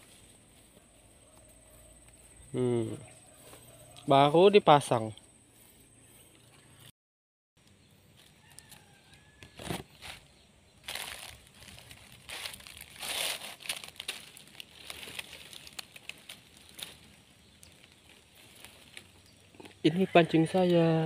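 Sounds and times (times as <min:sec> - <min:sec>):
dry grass rustling and crackling: 0:00.0 - 0:02.4, 0:08.1 - 0:21.0.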